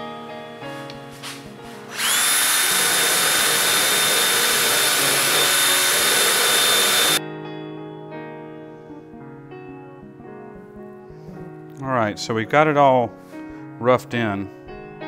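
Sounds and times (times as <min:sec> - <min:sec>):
rotary tool sanding wood: 0:01.9 - 0:07.2.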